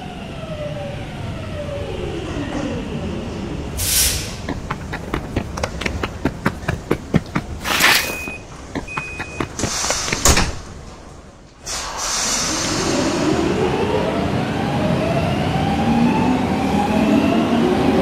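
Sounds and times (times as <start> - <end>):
quick running footsteps: 4.3 - 10.8
short beeps: 8.0 - 9.5
sliding doors shutting: 9.0 - 13.6
air hiss: 11.6 - 13.1.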